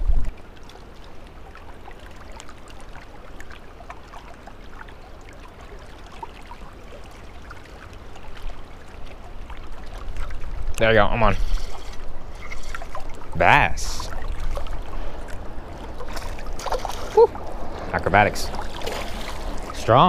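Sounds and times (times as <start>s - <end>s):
small waves lapping on rocks: 0.3s - 20.0s.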